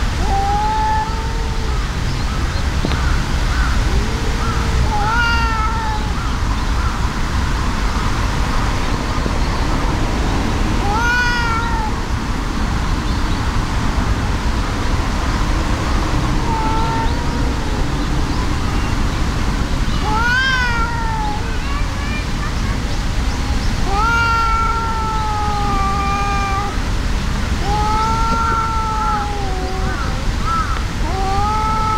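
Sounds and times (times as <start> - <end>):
cats yowling: 0.0 - 2.4, 3.0 - 7.2, 10.8 - 12.2, 15.8 - 22.8, 23.6 - 26.9, 27.6 - 31.9
steady low rumble: 11.6 - 20.2.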